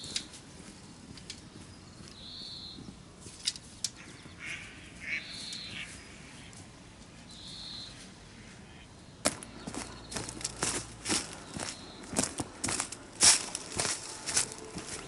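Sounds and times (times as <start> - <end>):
bird calling: 1.8 - 2.9, 3.9 - 6.6, 7.3 - 12.4.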